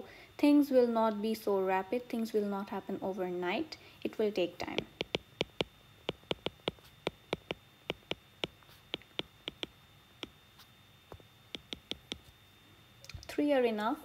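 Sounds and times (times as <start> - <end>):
stylus tapping on glass screen: 4.7 - 10.4, 11.1 - 12.3.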